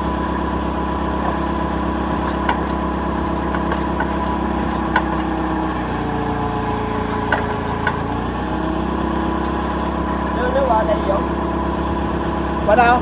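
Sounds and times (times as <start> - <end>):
forklift engine idling: 0.0 - 13.0
short metallic clinks: 1.2 - 10.2.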